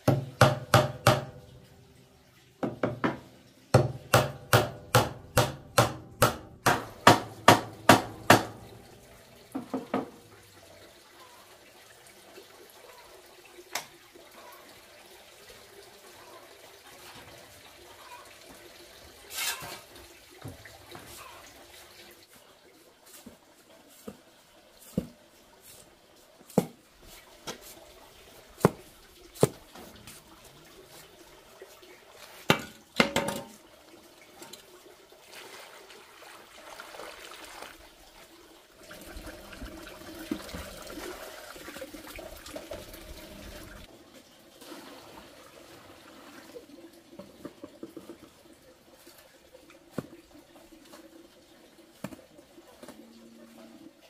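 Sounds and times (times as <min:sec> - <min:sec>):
shovel scraping concrete: 0:19.3 - 0:19.9
water pouring into sand: 0:34.9 - 0:43.9, 0:44.6 - 0:47.0.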